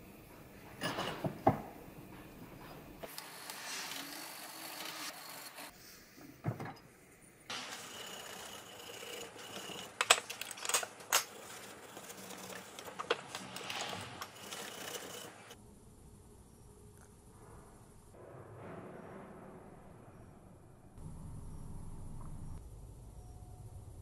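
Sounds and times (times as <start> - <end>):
wire wool scrubbing metal: 7.5 - 10.1, 10.9 - 15.6.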